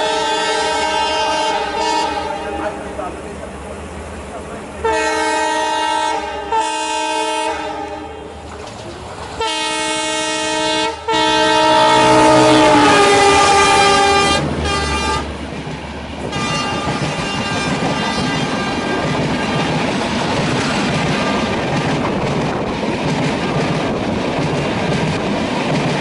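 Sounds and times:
locomotive air horn blasts: 0.0s - 2.8s, 4.8s - 8.4s, 9.4s - 15.3s, 16.3s - 19.8s
train coaches rushing past: 0.0s - 26.0s.

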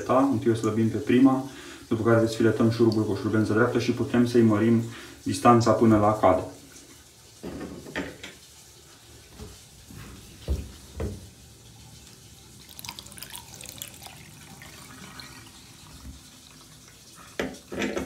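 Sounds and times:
water trickling down a drain: 0.0s - 7.4s, 8.3s - 18.0s
crackly fizzing: 0.0s - 17.8s
soft knocks: 10.4s - 11.3s.

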